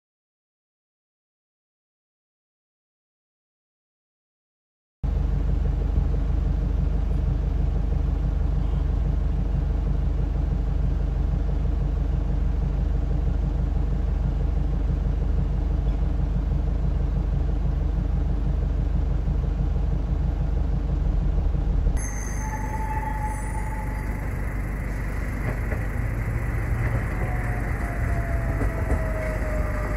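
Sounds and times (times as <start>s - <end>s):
car interior rumble: 5.1s - 29.9s
street noise: 5.1s - 29.9s
faint steady tone: 22.0s - 29.9s.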